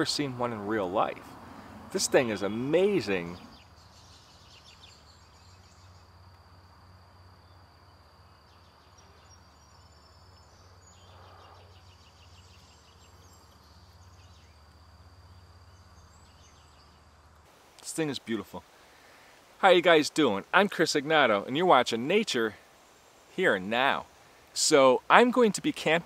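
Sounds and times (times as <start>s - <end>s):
rapid insect chirping: 0.0s - 26.0s
high-pitched insect trill: 2.1s - 17.2s.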